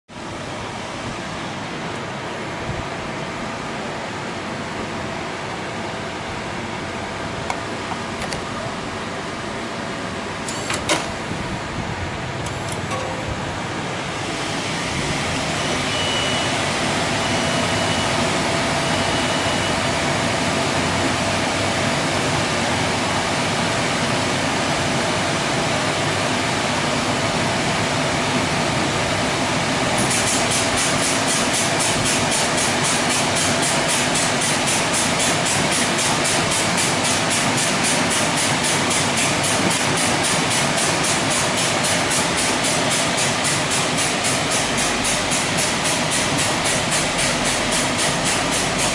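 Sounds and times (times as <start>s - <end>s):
car wash machine running: 0.1s - 48.9s
machine whine: 10.4s - 36.4s.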